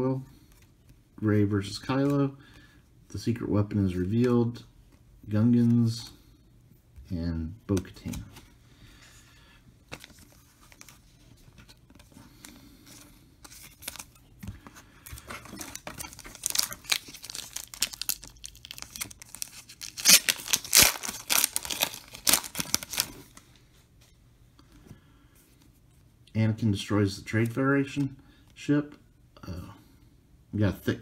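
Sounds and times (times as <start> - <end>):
foil wrapper tearing and crinkling: 15.6 - 23.2.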